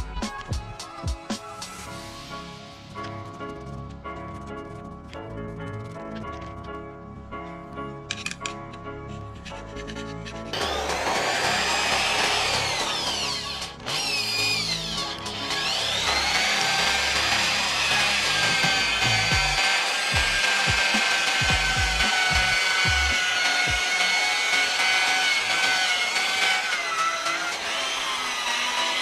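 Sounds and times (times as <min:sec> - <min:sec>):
power tool motor whining: 0:09.8 - 0:29.0.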